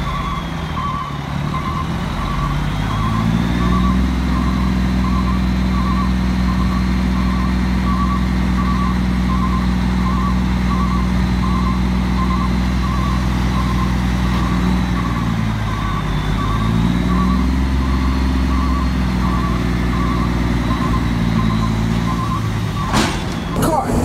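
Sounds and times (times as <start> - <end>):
backup alarm beeping: 0.0 - 24.0
diesel truck engine running: 0.0 - 24.0
hydraulic hoist lowering container: 22.8 - 24.0.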